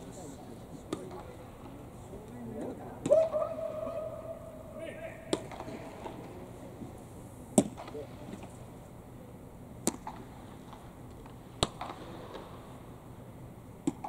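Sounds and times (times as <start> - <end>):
hall ambience hum: 0.0 - 14.0
sharp cracks ringing in a dome: 5.3 - 6.2, 11.6 - 12.7.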